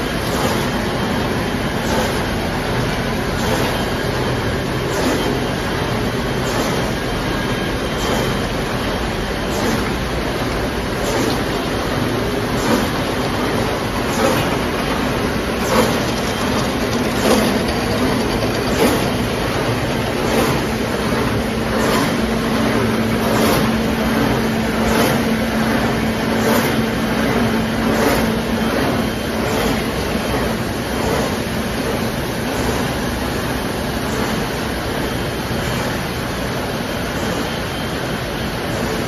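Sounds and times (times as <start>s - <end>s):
machinery with regular stroke: 0.0s - 39.0s
steady hum: 0.0s - 39.0s.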